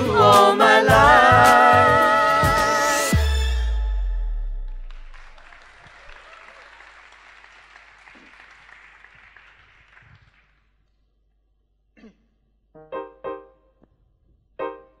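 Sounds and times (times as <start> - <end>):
audience applause: 4.8 - 10.7
short keyboard notes: 12.8 - 13.7.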